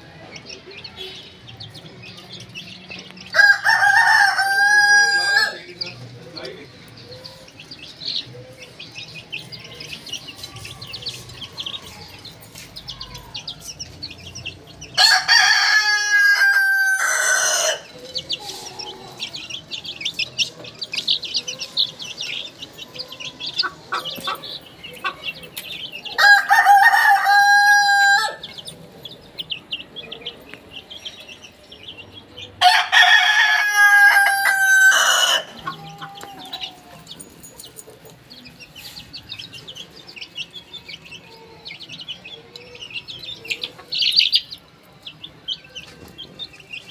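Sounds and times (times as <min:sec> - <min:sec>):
chicks peeping: 0:00.0 - 0:46.9
rooster crowing: 0:03.4 - 0:05.6, 0:15.0 - 0:17.9, 0:26.2 - 0:28.5, 0:32.6 - 0:37.1.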